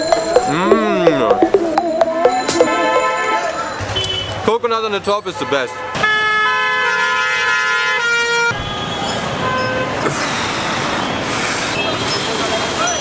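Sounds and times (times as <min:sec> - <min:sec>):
street traffic noise: 0:00.0 - 0:13.0
loud vehicle horn: 0:05.8 - 0:09.9.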